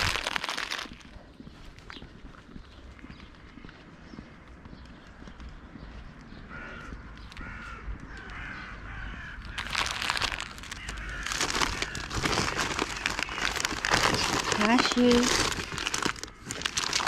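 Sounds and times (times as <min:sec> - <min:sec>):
plastic bag crinkling: 0:00.0 - 0:01.2, 0:09.4 - 0:17.0
crow cawing: 0:06.5 - 0:14.0.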